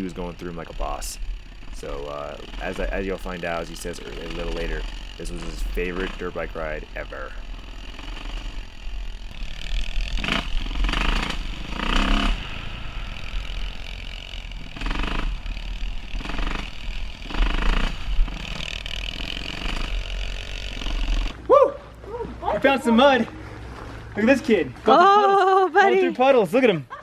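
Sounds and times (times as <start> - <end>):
dirt bike engines revving: 0.0 - 27.0.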